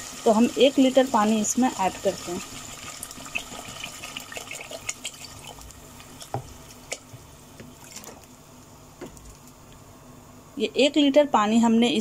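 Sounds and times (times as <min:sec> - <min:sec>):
water pouring into a pot: 0:01.7 - 0:06.4.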